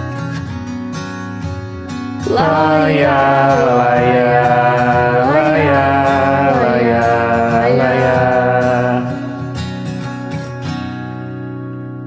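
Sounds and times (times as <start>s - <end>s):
acoustic guitar backing: 0.0s - 12.0s
person singing wordless vocalise: 2.2s - 9.8s.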